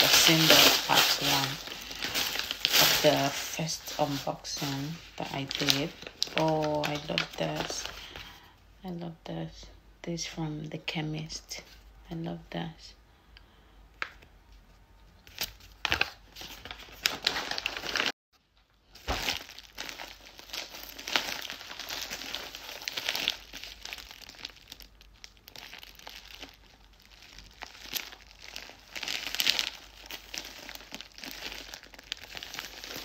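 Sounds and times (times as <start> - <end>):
packaging crinkling and tearing: 0.0 - 8.4, 15.3 - 33.0.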